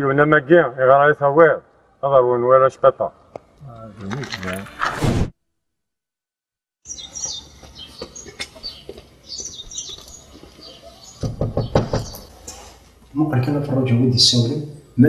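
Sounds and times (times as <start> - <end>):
small birds chirping: 6.8 - 13.2
knocks on wooden door: 11.2 - 12.2.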